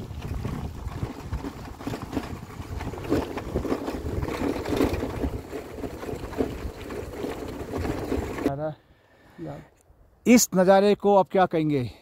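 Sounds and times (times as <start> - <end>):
vehicle rumbling over gravel: 0.0 - 8.5
wind buffeting microphone: 0.0 - 8.5.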